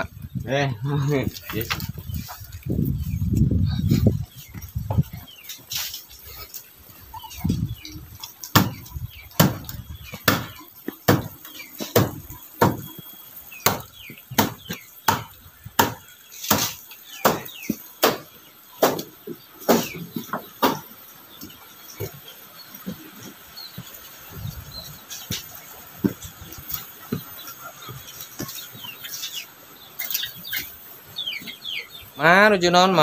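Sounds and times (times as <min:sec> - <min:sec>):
footsteps on concrete and stone: 0:01.2 - 0:15.4, 0:19.3 - 0:30.7.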